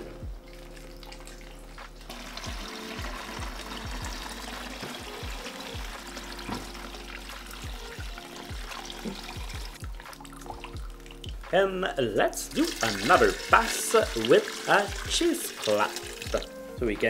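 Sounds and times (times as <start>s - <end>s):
background music with low beat: 0.0s - 17.0s
stock pouring through strainer: 1.0s - 10.7s, 12.5s - 16.5s.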